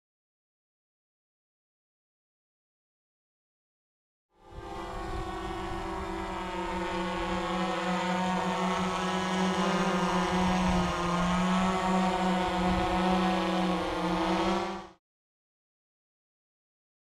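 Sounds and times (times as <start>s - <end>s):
drone motors buzzing hum: 4.4s - 15.0s.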